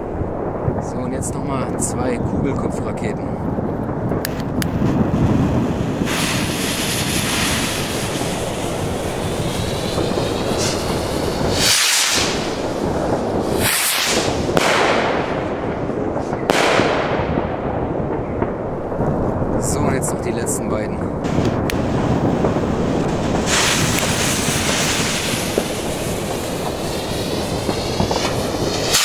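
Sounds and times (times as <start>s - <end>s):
fireworks rockets hissing launch: 4.2s - 17.1s, 21.2s - 29.0s.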